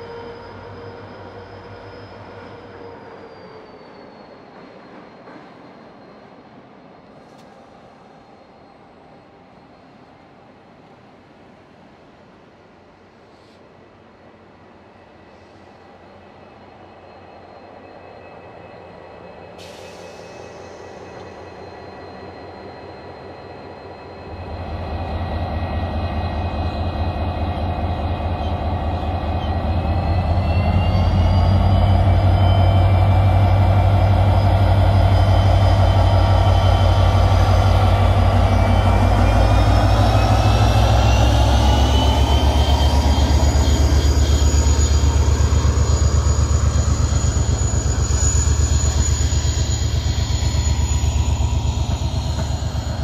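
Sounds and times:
train coaches rolling by: 0.0s - 53.0s
diesel locomotive engine throbbing: 19.6s - 53.0s.

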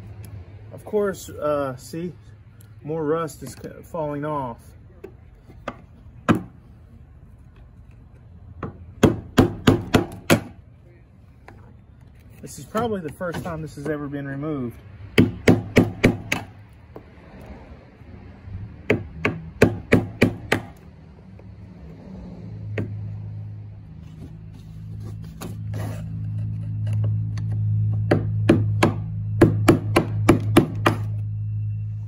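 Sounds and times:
low hum: 20.7s - 32.0s.

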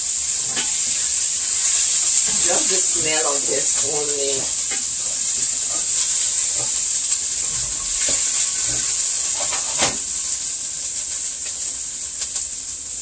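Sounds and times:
garlic sizzling in hot oil: 0.0s - 13.0s.

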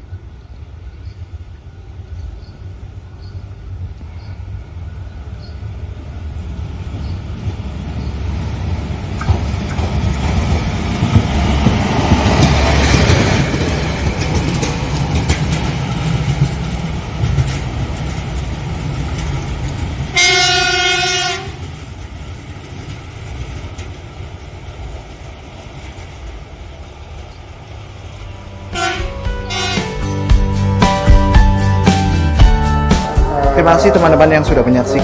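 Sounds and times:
diesel engine rumbling: 3.7s - 35.0s
horn blast: 20.2s - 21.6s, 28.7s - 30.2s.

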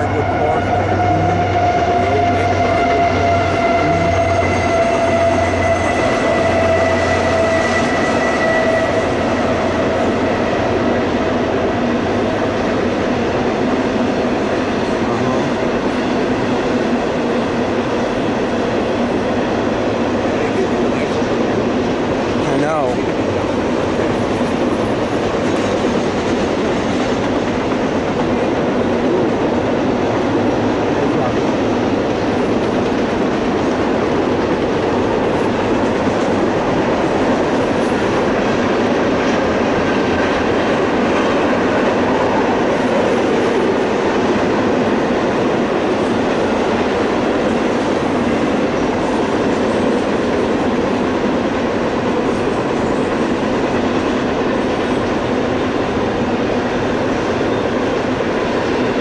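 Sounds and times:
steel wheels running on rails: 0.0s - 59.0s.

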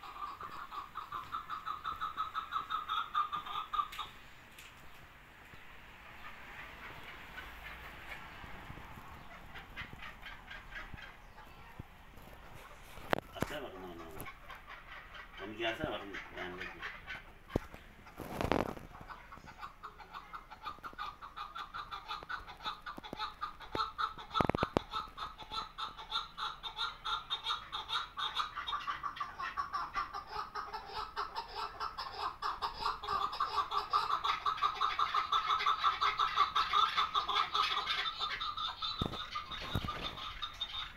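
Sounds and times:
partridge clucking call: 0.0s - 4.2s, 13.0s - 40.9s.

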